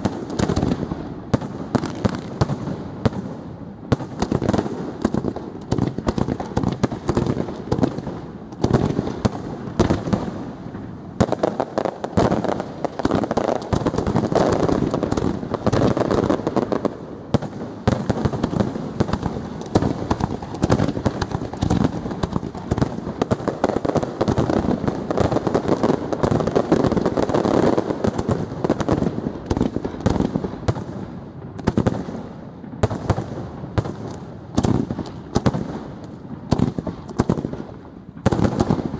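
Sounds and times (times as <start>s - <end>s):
fireworks bursting and crackling: 0.0s - 38.9s.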